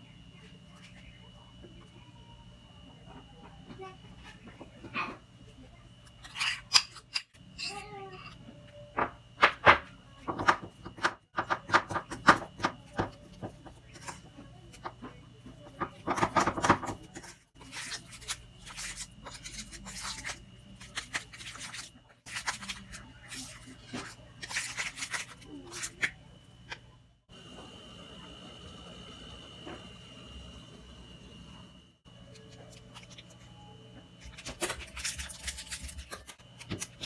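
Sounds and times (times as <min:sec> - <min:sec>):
batter squelching: 0:12.5 - 0:26.8.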